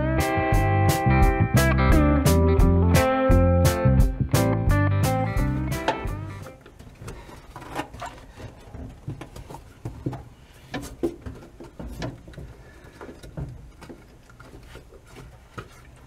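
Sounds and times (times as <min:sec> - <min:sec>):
knocks clicks and rubbing: 0:05.7 - 0:16.0.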